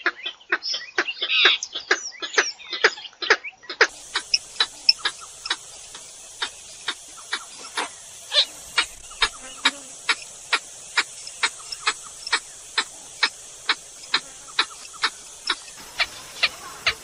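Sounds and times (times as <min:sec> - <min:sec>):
high hiss: 0:03.9 - 0:17.0.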